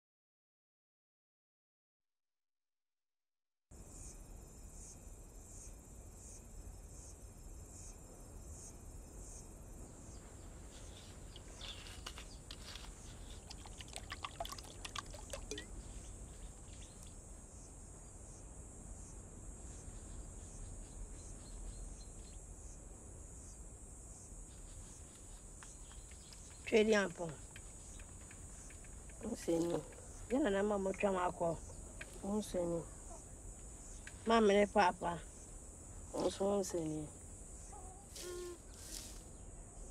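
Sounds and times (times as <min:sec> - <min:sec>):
liquid pouring into bowl: 0:13.4 - 0:15.8
high insect trilling: 0:24.5 - 0:39.2.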